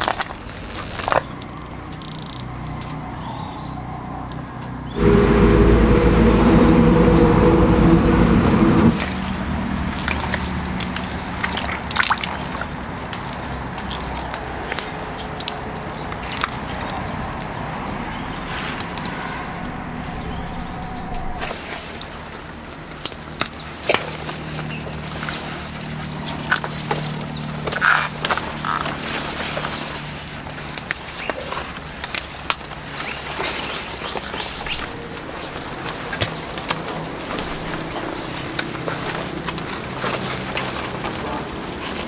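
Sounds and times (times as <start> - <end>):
open-field ambience: 2.5 - 11.6, 16.8 - 23.6
low engine hum: 4.9 - 13.4, 16.9 - 21.8.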